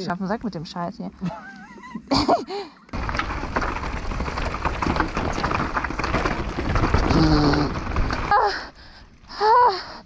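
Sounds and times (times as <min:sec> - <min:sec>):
bike clattering and rattling: 0:02.9 - 0:09.1
bike tyres rumbling on stones: 0:02.9 - 0:09.3.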